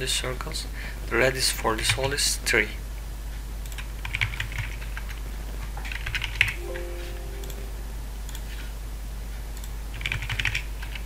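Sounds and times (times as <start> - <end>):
steady low tone: 6.6 - 8.6.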